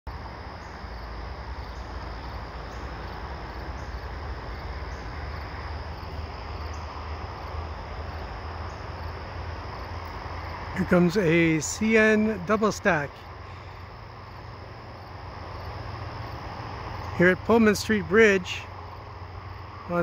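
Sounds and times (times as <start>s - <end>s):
crickets trilling: 0.1s - 20.0s.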